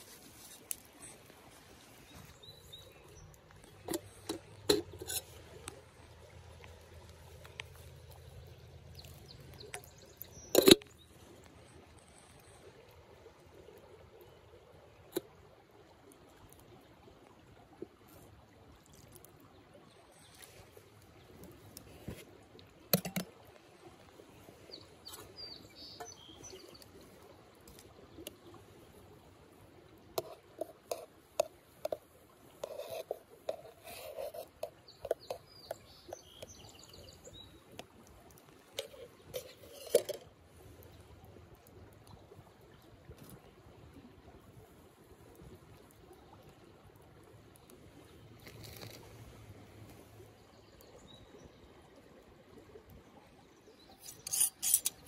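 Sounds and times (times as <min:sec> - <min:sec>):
birds chirping: 0:24.6 - 0:26.9.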